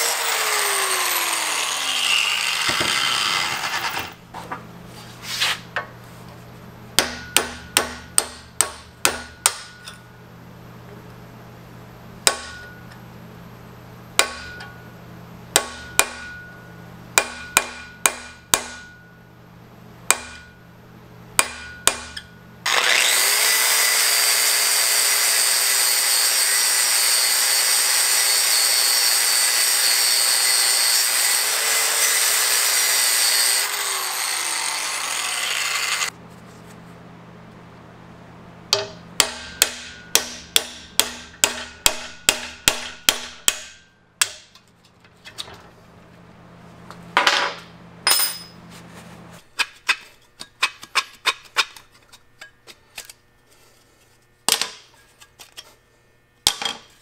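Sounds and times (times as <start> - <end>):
power tool whining: 0.0 - 4.2, 22.7 - 36.1
hammer striking metal: 7.0 - 10.1, 12.2 - 13.0, 14.2 - 14.9, 15.5 - 19.2, 20.1 - 20.6, 21.4 - 22.3, 38.7 - 44.6, 47.2 - 48.6.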